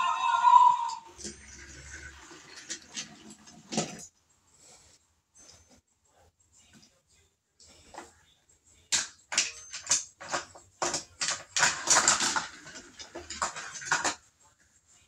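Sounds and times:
toy rattling down plastic ramp: 0:09.0 - 0:14.3.

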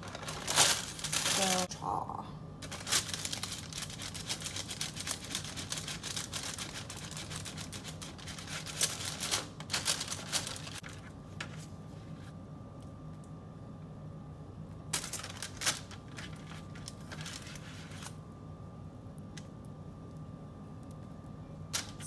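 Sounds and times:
parchment paper crinkling: 0:00.0 - 0:01.7, 0:02.6 - 0:12.2, 0:14.9 - 0:18.2.

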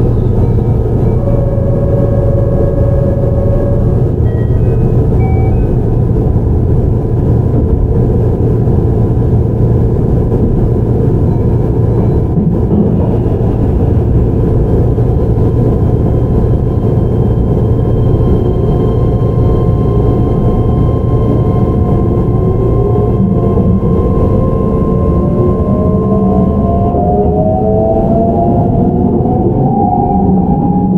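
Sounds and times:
constant high inverter tone: 0:00.0 - 0:30.9
train wheels rumbling on rail: 0:00.0 - 0:30.9
motor whines rising in pitch: 0:18.0 - 0:30.9.

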